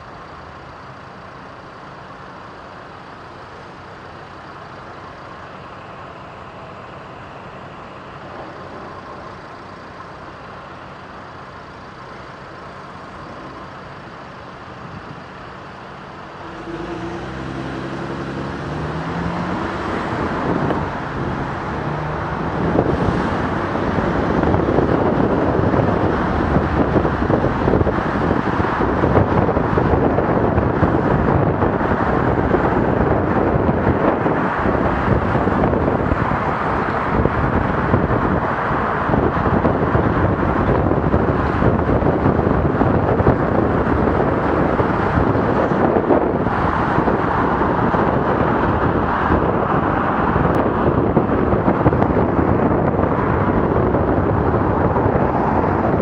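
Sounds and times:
road noise: 0.0 - 56.0
wind buffeting microphone: 14.6 - 56.0.

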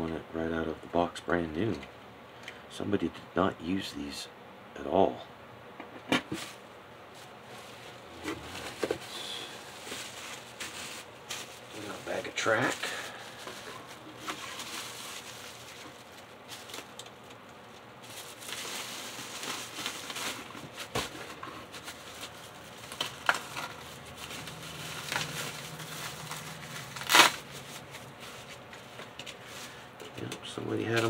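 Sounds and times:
bubble wrap and plastic bag crinkling: 6.4 - 29.9.

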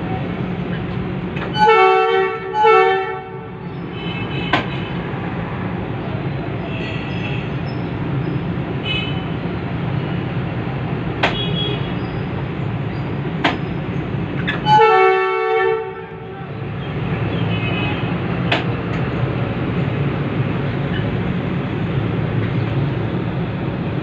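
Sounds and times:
diesel locomotive rumbling: 0.0 - 24.0
locomotive horn blast: 1.4 - 5.0, 14.5 - 16.5.

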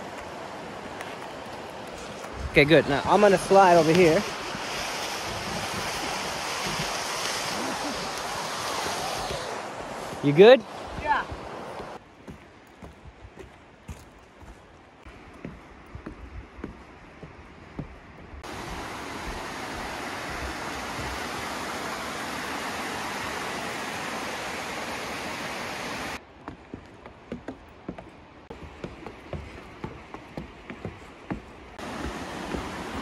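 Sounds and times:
waterfall rushing: 0.0 - 12.0, 18.4 - 26.2, 31.8 - 33.0
footsteps on wooden stairs: 0.0 - 21.6, 26.2 - 33.0.

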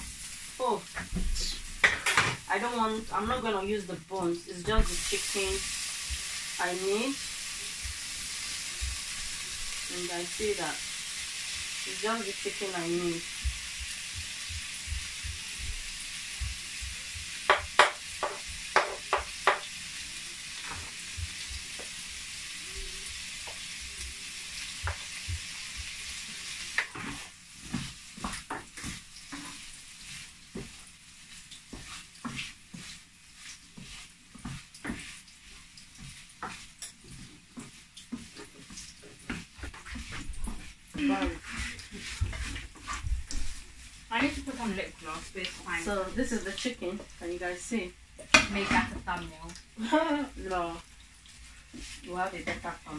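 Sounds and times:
chicken sizzling in a frying pan: 0.0 - 52.9
wooden spatula scraping pan: 24.9 - 47.1.

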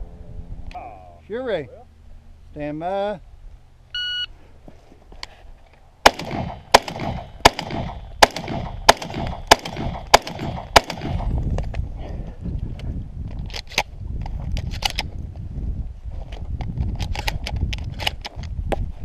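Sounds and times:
shotgun shots: 6.0 - 11.4.

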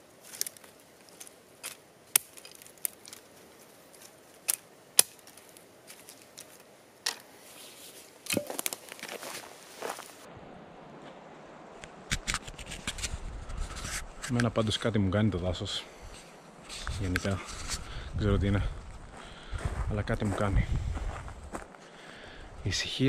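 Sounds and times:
twigs crackling: 0.0 - 10.3
hatchet chopping branches: 1.6 - 3.2, 4.4 - 5.6, 8.2 - 9.1.

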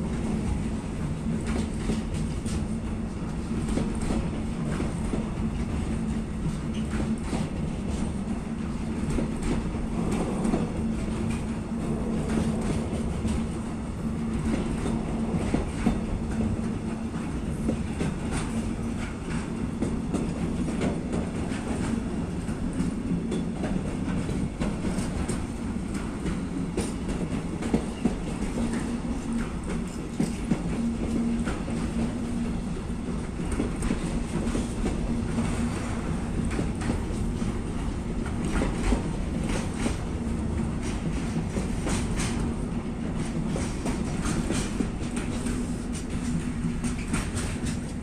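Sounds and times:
train wheels clicking on rails: 0.0 - 48.0.

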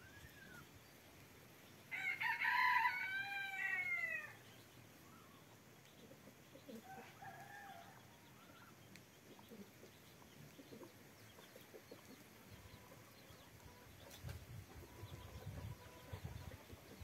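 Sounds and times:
faint chirps: 0.0 - 1.9, 4.3 - 17.0
hen clucking: 8.4 - 17.0.

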